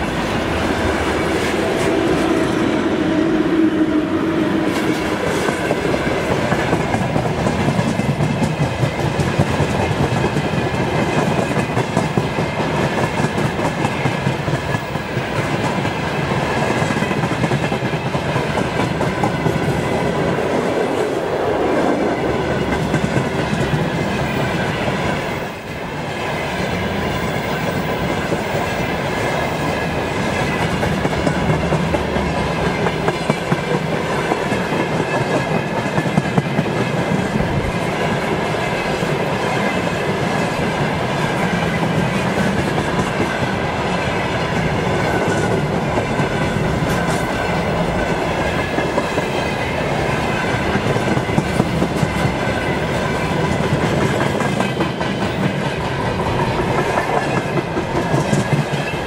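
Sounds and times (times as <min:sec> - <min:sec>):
locomotive hum: 0:00.0 - 0:07.6
train wheels rumbling on rail: 0:00.0 - 0:59.0
clickety-clack over rail joints: 0:04.7 - 0:59.0.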